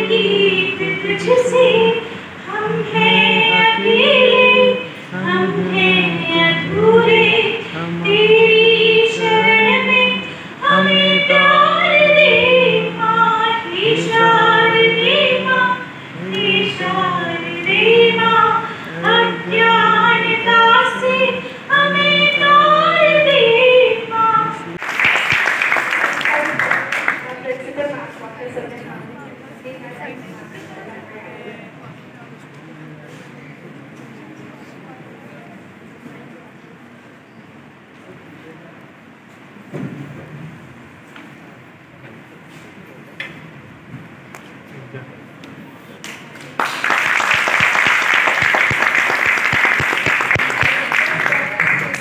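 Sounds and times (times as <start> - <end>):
woman singing into microphone: 0.0 - 24.8.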